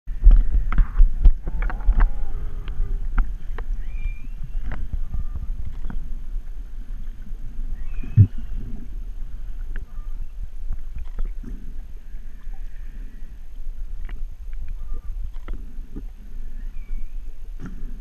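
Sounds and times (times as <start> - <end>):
low underwater rumble: 0.1 - 18.0
faint high whale calls: 1.4 - 6.0, 9.7 - 10.4, 12.0 - 13.5, 14.7 - 15.3.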